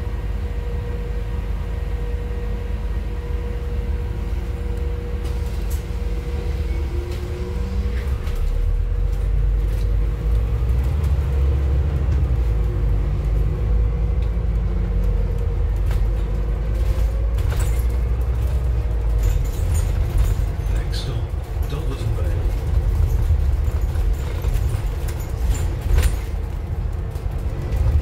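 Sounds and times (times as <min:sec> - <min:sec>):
bus engine rumble: 0:00.0 - 0:28.0
bus body knocks and rattles: 0:13.4 - 0:28.0.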